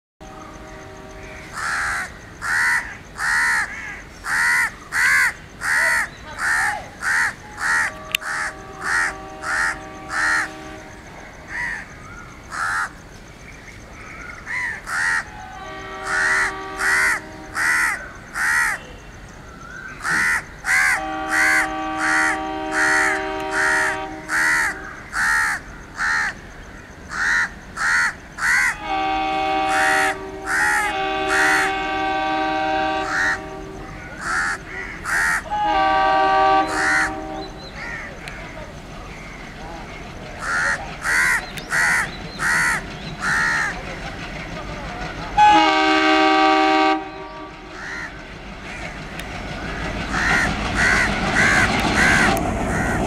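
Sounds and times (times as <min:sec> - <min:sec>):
locomotive air horn blasts: 0:00.2 - 0:01.5, 0:07.4 - 0:11.2, 0:15.3 - 0:17.7, 0:20.9 - 0:24.9, 0:28.7 - 0:34.0, 0:35.4 - 0:37.7, 0:45.4 - 0:47.8
crows cawing: 0:01.2 - 0:10.8, 0:11.4 - 0:13.0, 0:14.0 - 0:18.9, 0:19.8 - 0:43.8, 0:45.8 - 0:53.0.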